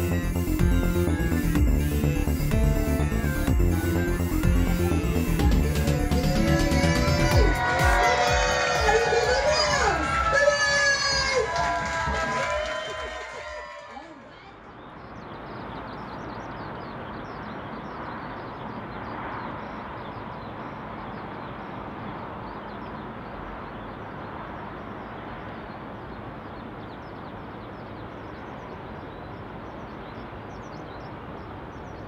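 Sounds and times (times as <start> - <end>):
distant traffic hum: 0.0 - 32.0
small birds chirping: 14.3 - 32.0.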